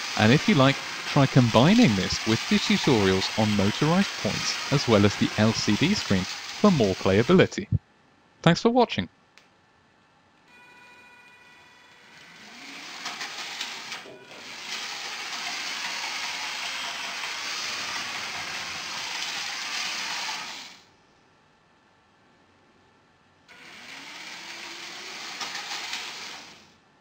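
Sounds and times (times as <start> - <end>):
toy train motor whirring: 0.0 - 7.5, 11.2 - 20.9, 23.5 - 26.7.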